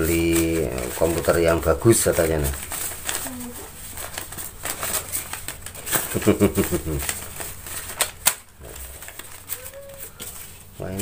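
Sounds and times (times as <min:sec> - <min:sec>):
banknotes rustling and flicking: 0:00.0 - 0:11.0.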